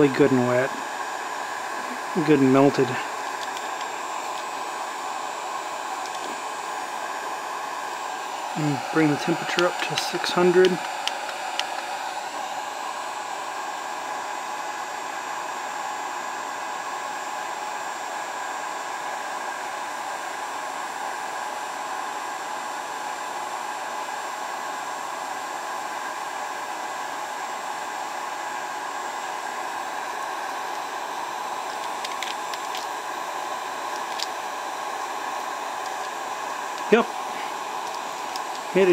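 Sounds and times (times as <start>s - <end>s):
heat gun air rush: 0.0s - 14.5s, 28.0s - 38.9s
fan motor whine: 0.0s - 38.9s.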